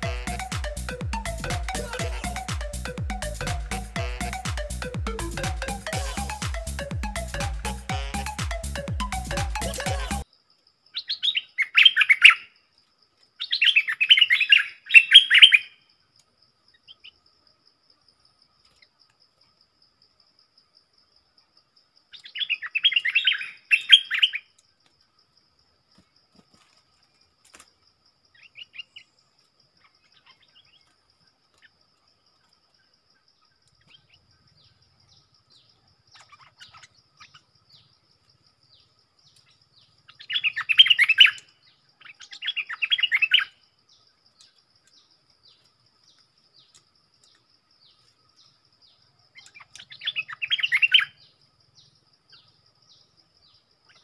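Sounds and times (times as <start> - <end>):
bulbuls singing: 0.0 - 10.3, 11.0 - 12.5, 13.4 - 15.8, 22.1 - 24.6, 28.3 - 32.6, 33.2 - 54.0
high insect trill: 0.0 - 54.0.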